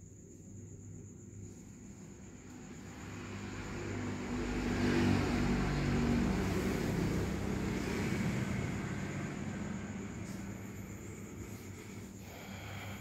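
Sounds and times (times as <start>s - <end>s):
vehicle engine passing by: 2.3s - 12.5s.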